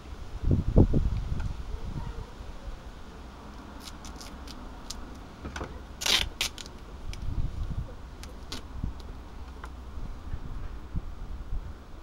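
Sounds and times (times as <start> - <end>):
duct tape ripping: 3.6 - 5.2, 6.0 - 7.3, 8.2 - 9.1
tape clicks and rustles: 3.8 - 5.2, 6.0 - 7.3, 8.2 - 9.7.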